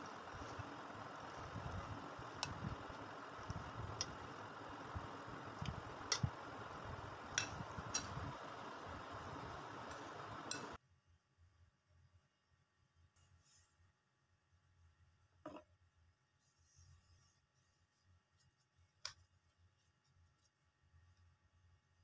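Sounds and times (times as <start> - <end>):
steady background hiss: 0.0 - 10.8.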